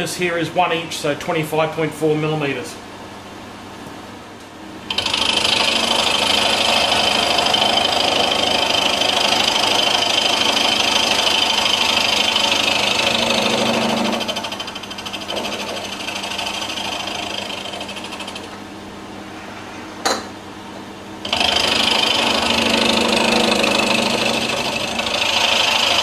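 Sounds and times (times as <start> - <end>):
milling machine cutting metal: 4.9 - 18.5, 21.2 - 26.0.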